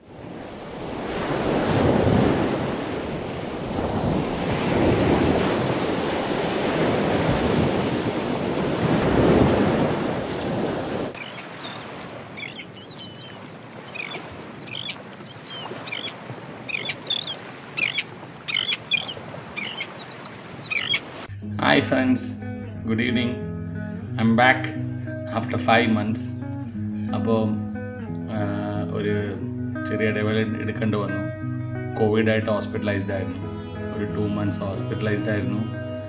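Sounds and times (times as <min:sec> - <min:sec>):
ocean waves rushing in: 0:00.0 - 0:21.3
birds chirping: 0:11.1 - 0:21.2, 0:32.8 - 0:35.8.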